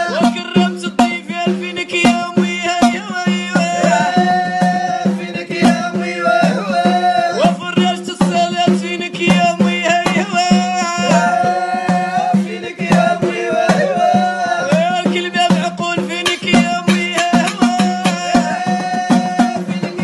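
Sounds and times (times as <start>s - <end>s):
man singing held notes: 14.9s - 20.0s.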